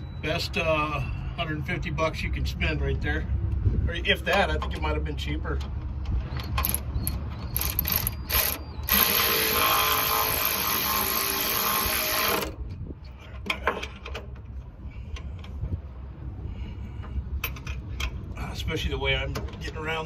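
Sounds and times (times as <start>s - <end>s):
power wrench spinning: 6.4s - 12.6s.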